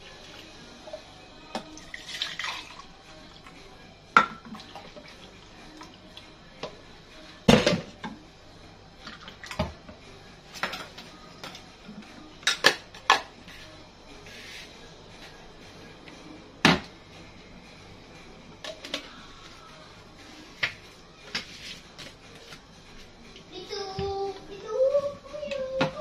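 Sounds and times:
liquid pouring: 0:01.8 - 0:02.9.

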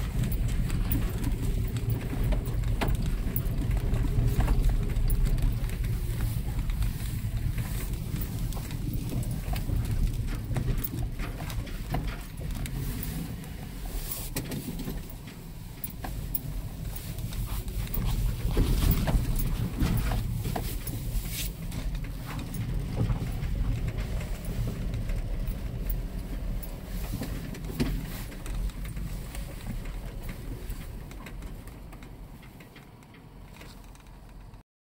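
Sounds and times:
wind rumble on microphone: 0:00.0 - 0:34.6
brush rustling and knocking: 0:11.6 - 0:31.4.

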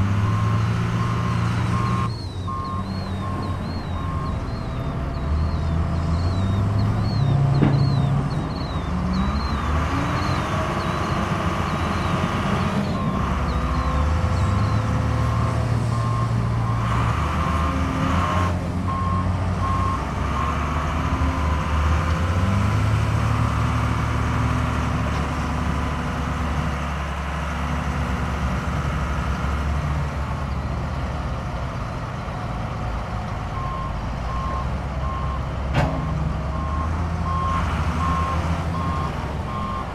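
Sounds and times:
heavy machinery engines rumbling: 0:00.0 - 0:39.9
reversing alarm beeping: 0:00.2 - 0:11.1, 0:36.0 - 0:39.9.

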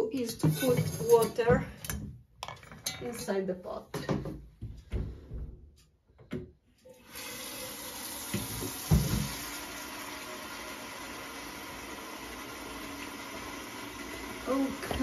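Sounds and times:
tap water running into pot: 0:06.9 - 0:15.0
pot knocking against metal sink: 0:08.4 - 0:09.4.

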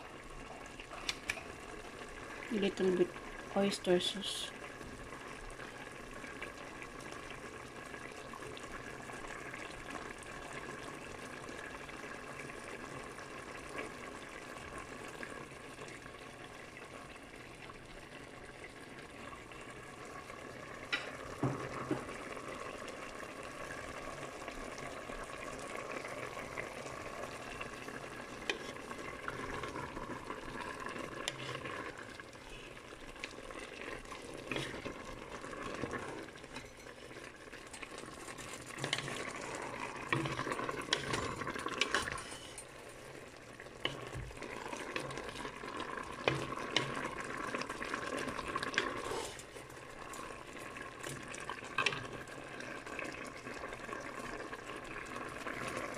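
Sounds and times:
pot simmering: 0:00.0 - 0:55.9
utensil stirring pot: 0:27.4 - 0:54.4.

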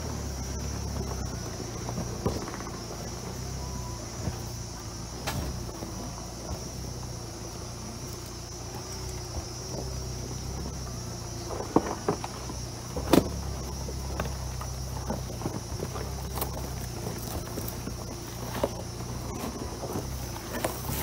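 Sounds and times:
diesel engine running low: 0:00.0 - 0:21.0
high insect drone: 0:00.0 - 0:21.0
vehicle knocking over rocks: 0:00.0 - 0:21.0.

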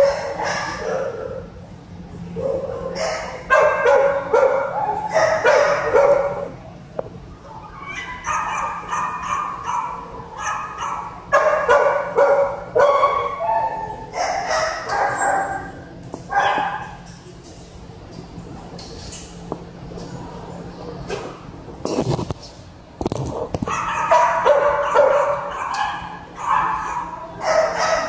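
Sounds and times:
dogs barking and yipping: 0:00.0 - 0:01.5, 0:02.4 - 0:06.5, 0:07.4 - 0:17.0, 0:23.6 - 0:28.0.

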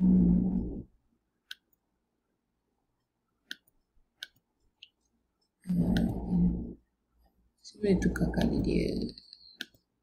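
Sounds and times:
computer mouse clicking: 0:01.4 - 0:01.8, 0:03.4 - 0:05.0, 0:05.7 - 0:06.6, 0:08.0 - 0:09.9.

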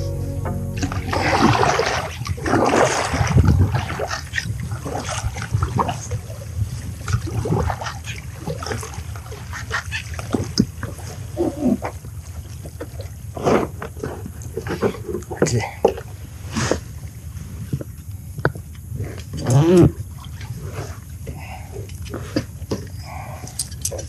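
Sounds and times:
water splashing from paddling: 0:00.8 - 0:13.7.

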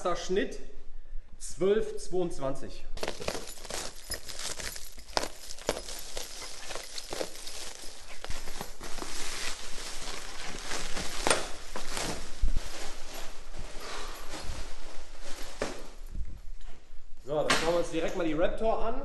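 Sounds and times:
plastic wrap crinkling and ripping: 0:03.0 - 0:16.0.

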